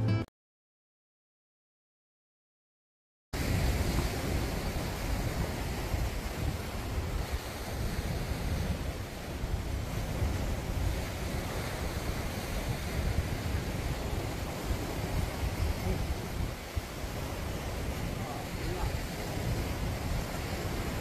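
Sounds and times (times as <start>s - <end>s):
sea surf on shore: 3.4s - 21.0s
wind buffeting microphone: 3.4s - 21.0s.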